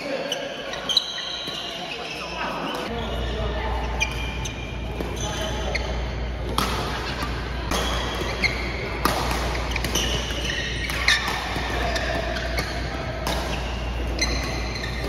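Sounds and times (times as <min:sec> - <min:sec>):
shoe squeaks on court floor: 0:00.0 - 0:06.3, 0:07.0 - 0:08.8, 0:09.4 - 0:15.0
rackets striking shuttlecock: 0:06.3 - 0:15.0.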